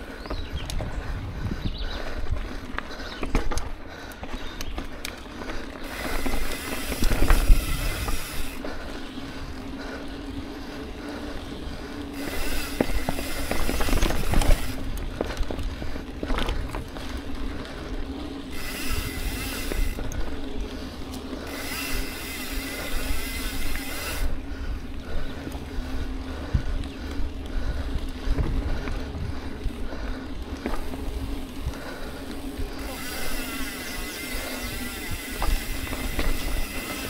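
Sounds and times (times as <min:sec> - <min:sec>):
wind on microphone: 0:00.2 - 0:02.6
bike freewheel buzzing: 0:01.9 - 0:37.0
tyres rumbling on dirt: 0:02.0 - 0:37.0.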